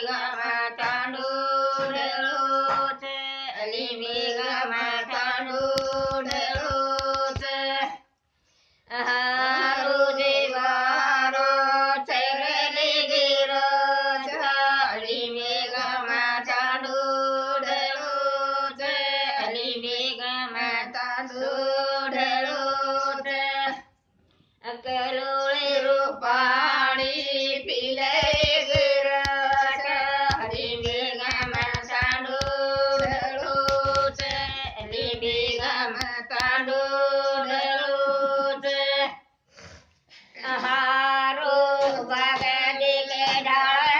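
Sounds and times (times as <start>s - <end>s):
women singing unaccompanied: 0.0s - 8.1s, 8.9s - 24.0s, 24.6s - 39.3s, 40.4s - 43.9s
faint thumps: 5.5s - 7.5s, 28.1s - 36.2s.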